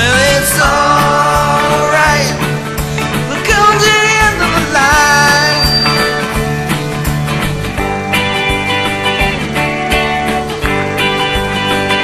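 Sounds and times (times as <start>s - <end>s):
guitar: 0.0s - 12.0s
person singing long sliding notes: 3.3s - 6.5s.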